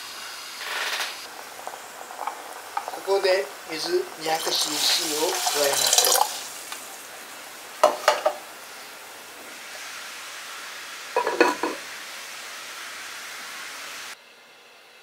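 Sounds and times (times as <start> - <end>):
steady hiss: 0.0 - 15.0
ceramic lid rattling on pot: 4.3 - 6.3, 11.2 - 11.8.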